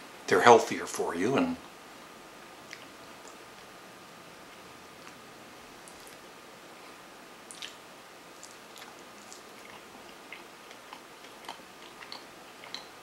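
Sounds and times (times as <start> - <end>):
person chewing with mouth clicks: 2.7 - 3.4, 5.8 - 6.2, 7.5 - 7.8, 8.4 - 13.0.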